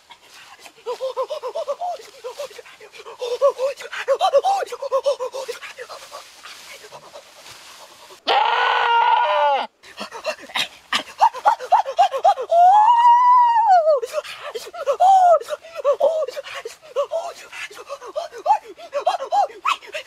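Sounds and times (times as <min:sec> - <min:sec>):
man yelling and groaning: 0:00.9 - 0:06.0, 0:11.3 - 0:17.5, 0:18.1 - 0:20.0.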